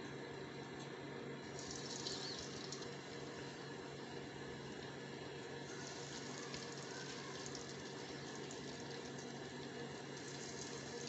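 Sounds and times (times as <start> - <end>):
batter sizzling in hot oil: 1.5 - 4.8, 5.6 - 11.0.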